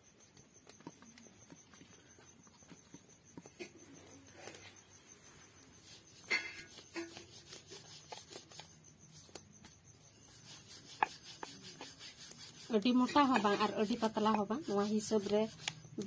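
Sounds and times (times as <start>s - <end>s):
rolling pin rubbing dough: 5.8s - 16.0s.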